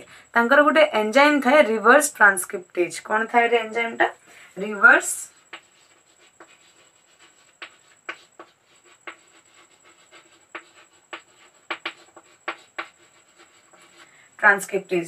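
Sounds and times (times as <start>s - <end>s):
pen tapping on writing surface: 10.5s - 13.0s.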